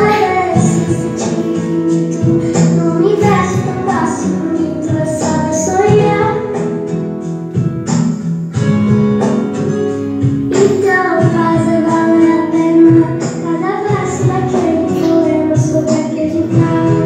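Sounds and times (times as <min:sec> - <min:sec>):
woman singing: 0:00.0 - 0:06.7, 0:10.5 - 0:17.0
acoustic guitar: 0:00.0 - 0:17.0.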